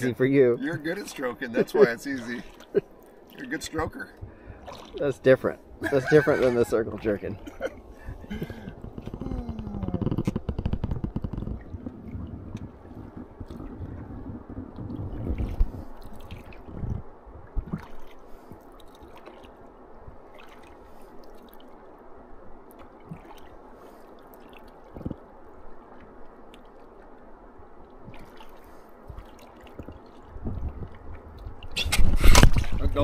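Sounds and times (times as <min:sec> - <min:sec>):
oars pulling through water: 0:00.0 - 0:33.0
water dripping and gurgling: 0:00.6 - 0:33.0
low rumble: 0:07.7 - 0:17.8.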